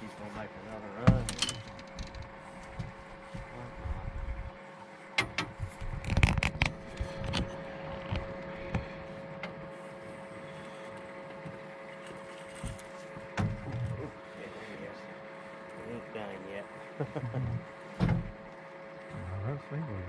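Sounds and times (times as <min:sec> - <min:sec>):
steady hum: 0:00.0 - 0:20.0
fishing gear knocking and scraping: 0:01.1 - 0:02.4.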